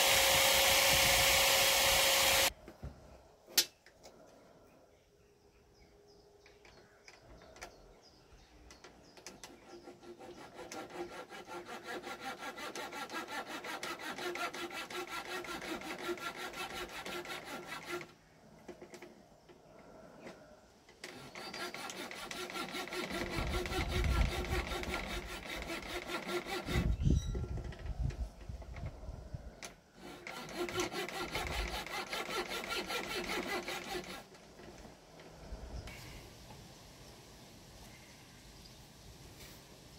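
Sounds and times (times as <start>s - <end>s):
coping saw cutting: 0.0s - 2.6s, 9.3s - 18.2s, 21.0s - 27.0s, 29.6s - 34.8s.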